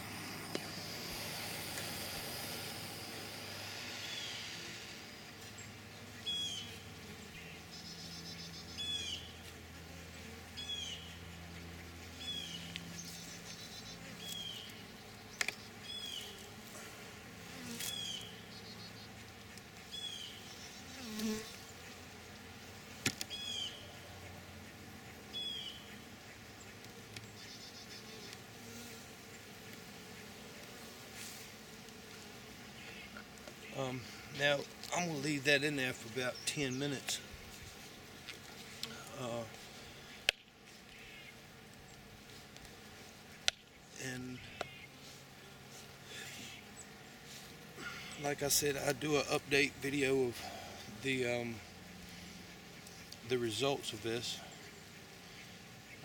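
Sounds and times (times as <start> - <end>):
propane torch hissing: 0.0 - 5.4.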